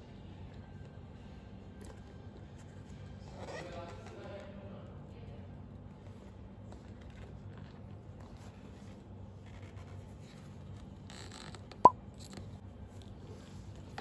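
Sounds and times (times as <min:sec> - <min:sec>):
rubbing and scratching on leather bag: 0:06.1 - 0:11.1.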